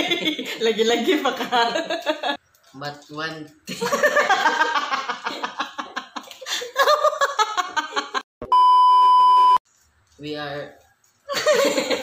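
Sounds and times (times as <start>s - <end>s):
loud test-tone beep: 8.4s - 9.6s.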